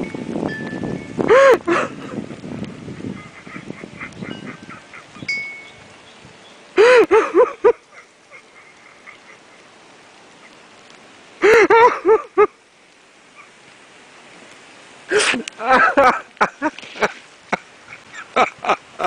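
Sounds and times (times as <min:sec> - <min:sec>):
man crying out ecstatically: 0:01.3 - 0:02.0, 0:06.8 - 0:08.1, 0:11.4 - 0:12.5.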